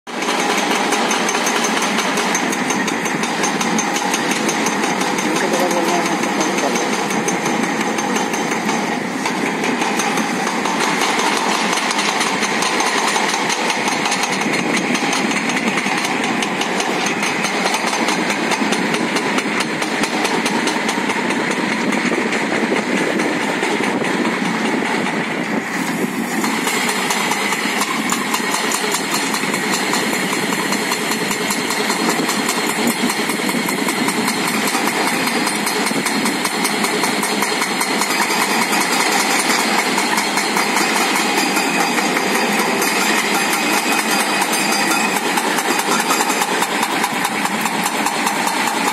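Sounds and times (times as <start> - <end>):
drum cutter grinding rock: 0.1 - 21.1
diesel engine under load: 0.1 - 48.9.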